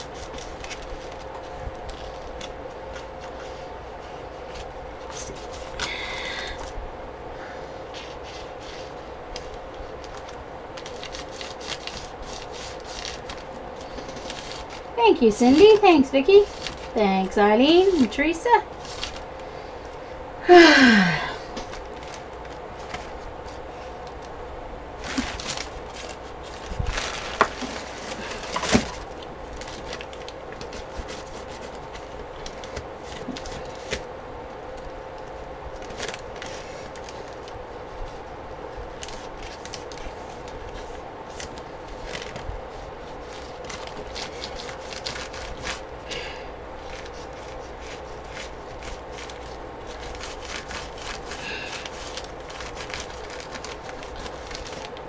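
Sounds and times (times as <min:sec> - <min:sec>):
steady low hum: 0:00.0 - 0:55.0
paper shuffling and knocks: 0:07.9 - 0:17.0, 0:21.6 - 0:24.3, 0:25.0 - 0:34.1, 0:38.9 - 0:55.0.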